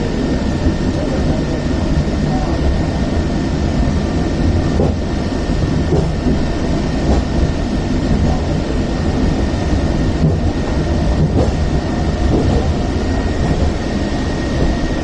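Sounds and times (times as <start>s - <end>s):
funicular car rumbling on rails: 0.0s - 15.0s.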